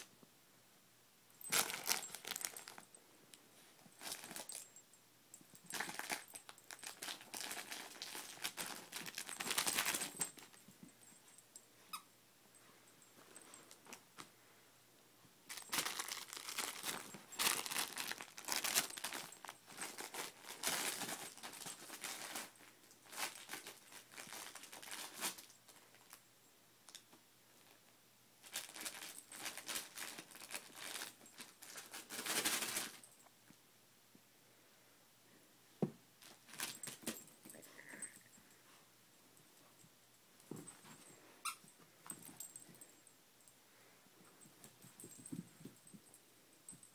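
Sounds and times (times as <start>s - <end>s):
plush toy rustling and crinkling: 1.4s - 4.8s, 5.4s - 14.3s, 15.4s - 26.2s, 27.6s - 33.3s, 36.2s - 38.1s, 40.4s - 43.1s, 44.2s - 46.9s.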